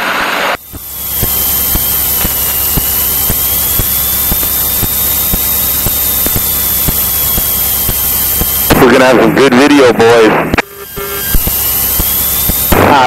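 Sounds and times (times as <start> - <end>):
light aircraft engine drone: 0.0 - 13.0
thin steady whine: 0.0 - 13.0
faint regular ticks: 0.7 - 8.8, 10.9 - 12.8.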